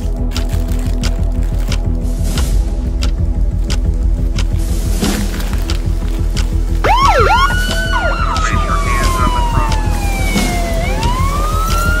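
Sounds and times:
music with steady beat: 0.0s - 12.0s
siren wailing: 6.8s - 12.0s.

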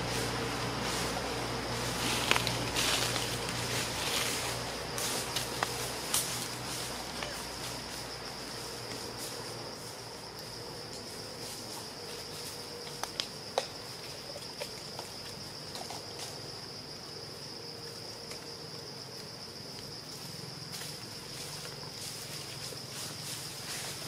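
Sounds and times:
insect chorus: 0.0s - 24.0s.

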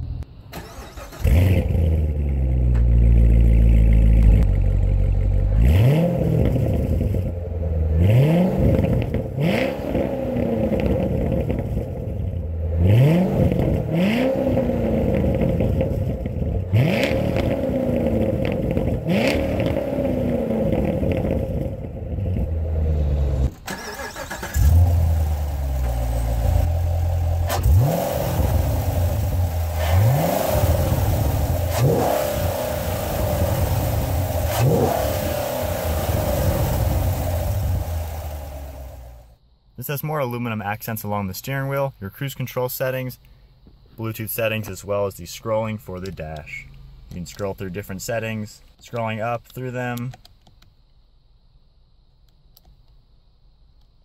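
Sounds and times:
car engine revving: 0.0s - 39.4s.

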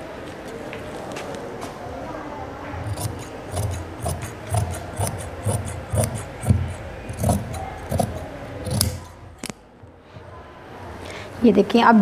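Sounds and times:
scissors cutting cloth: 2.8s - 9.5s.

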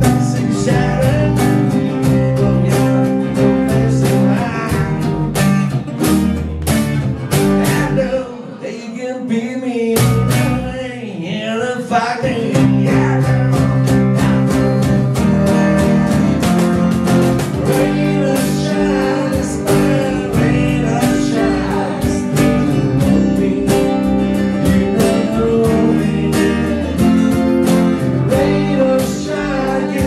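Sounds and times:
upright bass: 0.0s - 8.4s, 10.0s - 11.0s, 12.2s - 30.0s
strummed acoustic guitars: 0.0s - 30.0s
percussion hits: 13.9s - 18.7s.

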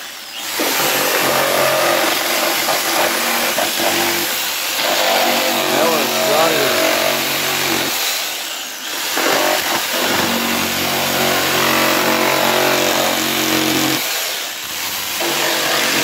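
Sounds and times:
power saw cutting plastic and foam: 0.0s - 16.0s.

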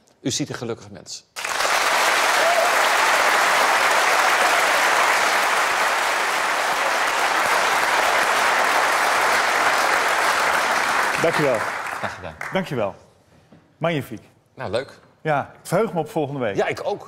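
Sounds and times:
large audience applauding: 1.4s - 12.8s.

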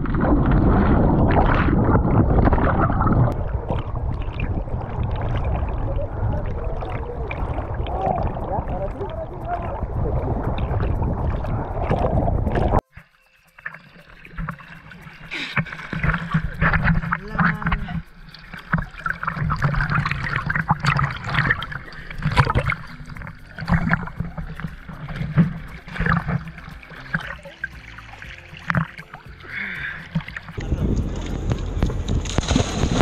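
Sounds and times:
dense water rush: 0.0s - 12.8s, 14.2s - 33.0s
water lapping: 0.0s - 33.0s
water sloshing and splashing: 0.0s - 33.0s.

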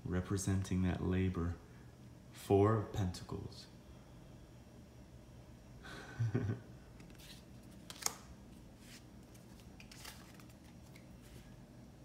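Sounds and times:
cards swishing: 7.0s - 11.5s.

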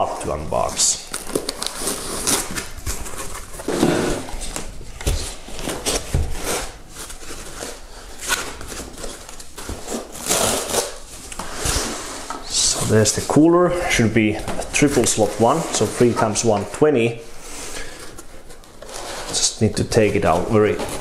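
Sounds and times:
foam rubbing and scraping: 1.6s - 13.4s, 17.3s - 21.0s.

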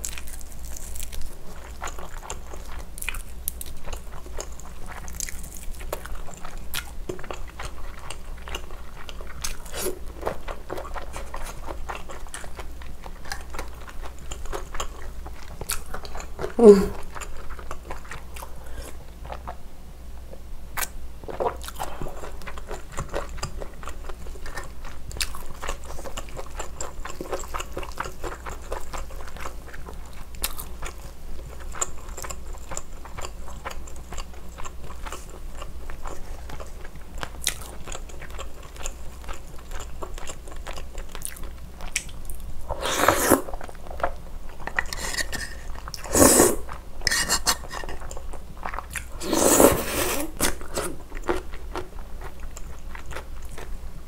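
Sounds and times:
slurping noodles: 42.7s - 43.6s, 44.9s - 48.0s, 49.2s - 51.0s.

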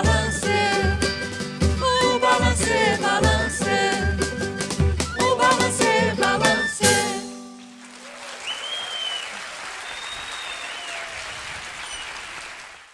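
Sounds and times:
woman singing: 0.0s - 4.6s, 5.2s - 7.4s
small acoustic band: 0.0s - 8.3s
audience applauding: 7.5s - 12.9s.

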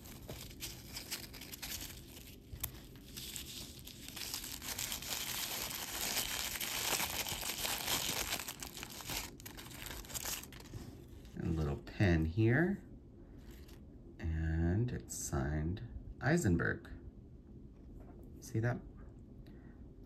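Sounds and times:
packing wrap crinkling: 0.0s - 11.4s.

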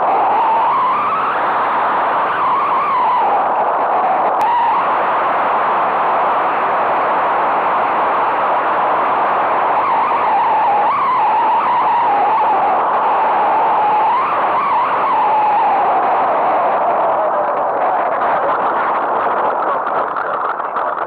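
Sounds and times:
wavering whistle: 0.0s - 4.9s, 9.7s - 18.0s
rushing airflow: 0.0s - 21.0s.

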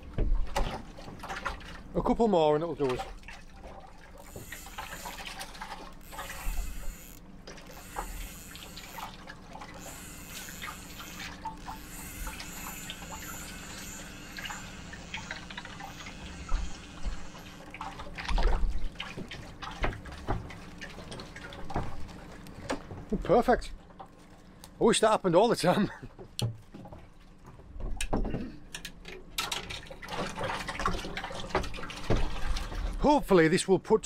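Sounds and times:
water splashing and dripping: 0.0s - 24.8s, 28.8s - 33.4s
small clicks: 6.0s - 9.1s, 9.7s - 17.8s.

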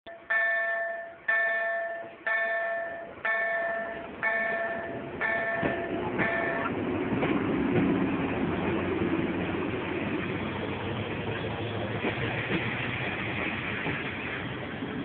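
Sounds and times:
warning bell striking: 0.1s - 6.8s
train rumble: 0.1s - 15.0s.

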